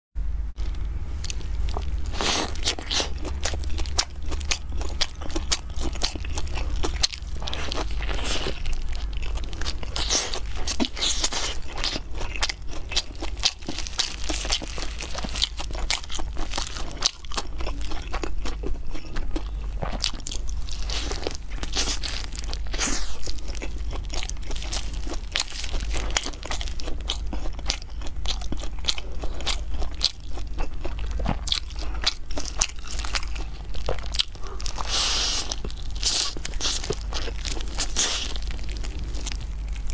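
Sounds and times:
crisp skin crunching: 0.6s - 39.9s
chewing and lip smacking: 0.7s - 39.9s.

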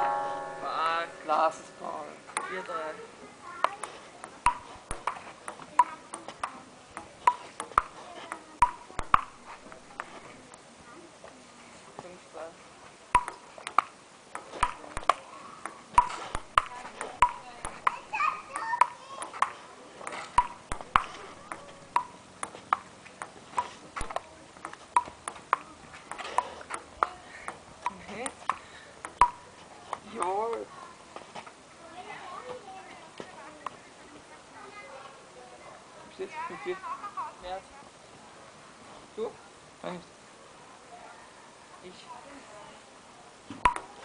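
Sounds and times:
ping-pong ball hitting paddles: 3.6s - 10.2s, 13.2s - 29.4s, 43.6s - 44.0s
ball bouncing on table: 4.4s - 10.1s, 13.2s - 29.4s, 43.5s - 43.9s.

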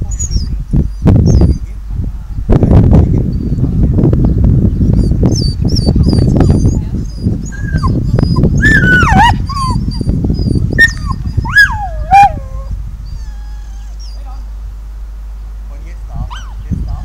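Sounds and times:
dog whining and yelping: 5.0s - 14.3s, 16.3s - 17.0s.

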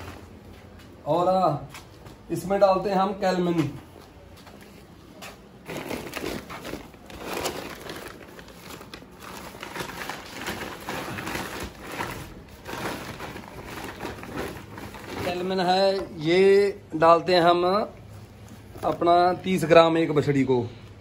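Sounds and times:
feed sacks rustling: 5.6s - 16.3s.

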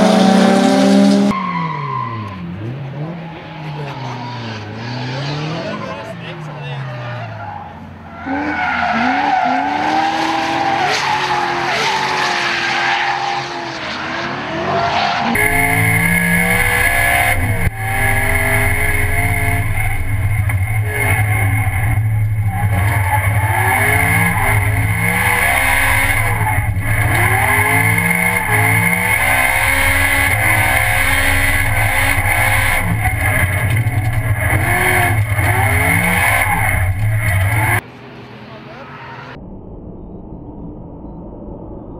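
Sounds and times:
car engine revving: 0.0s - 37.8s
loud cabin drone: 15.4s - 37.8s.

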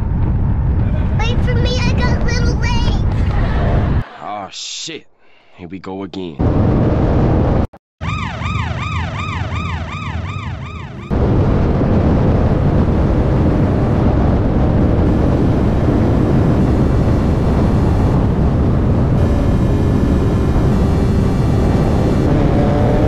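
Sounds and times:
wind noise on camera: 0.0s - 4.0s, 11.1s - 23.0s
yelping siren sound effect: 8.0s - 11.1s
car engine roaring: 10.7s - 23.0s.

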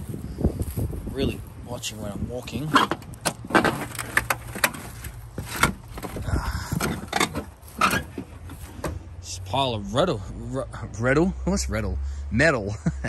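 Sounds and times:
footsteps on rubble and dry grass: 0.0s - 9.2s
scrap metal knocks and rattles: 2.7s - 9.0s.

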